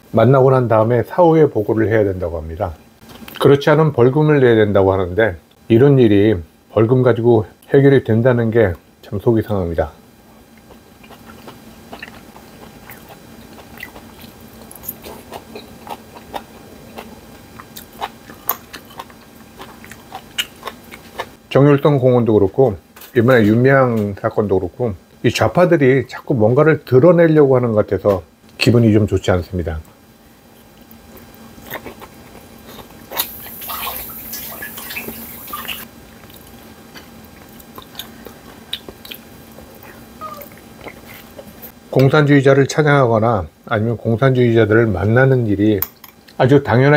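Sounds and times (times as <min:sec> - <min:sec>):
man chewing with mouth smacks: 0:10.4 - 0:21.4, 0:30.6 - 0:41.8.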